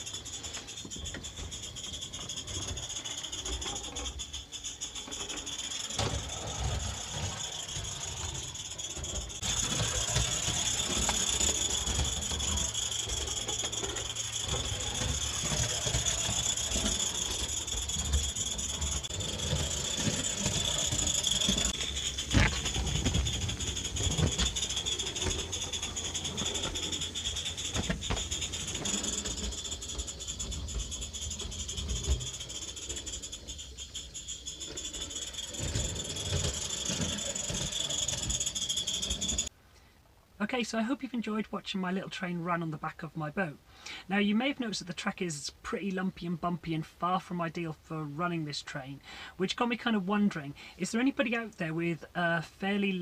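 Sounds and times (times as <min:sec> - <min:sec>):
model train wheels rattling: 0:00.0 - 0:39.5
steam hissing: 0:00.0 - 0:39.5.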